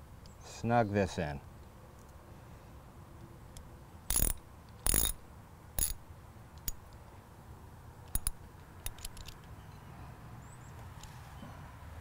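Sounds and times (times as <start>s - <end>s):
ratchet wrench clicking: 4.1s - 5.2s, 5.8s - 6.0s, 8.0s - 9.5s.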